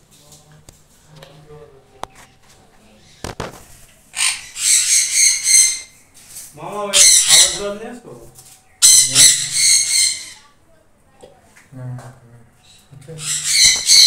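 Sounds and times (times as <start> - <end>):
parrots screeching: 4.1 - 6.0, 6.8 - 7.9, 8.8 - 10.4, 13.2 - 14.0.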